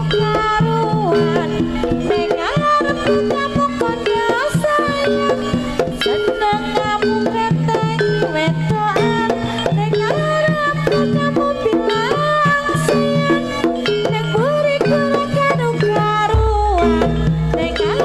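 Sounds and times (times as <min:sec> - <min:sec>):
hand drums: 0:00.0 - 0:18.0
sliding melodic lead: 0:12.0 - 0:18.0.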